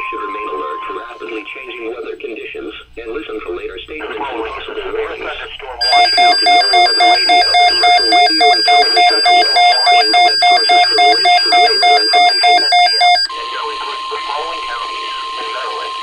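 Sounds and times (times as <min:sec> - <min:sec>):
broadcast voice: 0:00.1 - 0:16.0
rapid electronic beeps: 0:05.8 - 0:13.8
steady alarm tone: 0:05.8 - 0:16.0.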